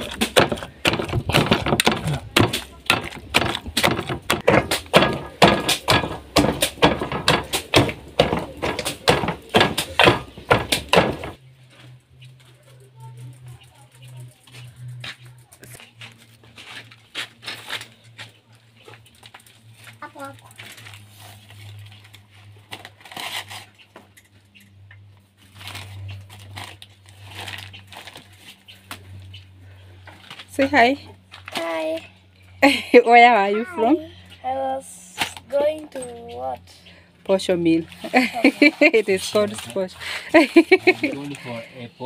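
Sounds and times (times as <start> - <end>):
steady low hum: 0.0 - 42.0
plastic bag rustling and crinkling: 18.7 - 23.8, 25.4 - 29.2, 37.9 - 41.6.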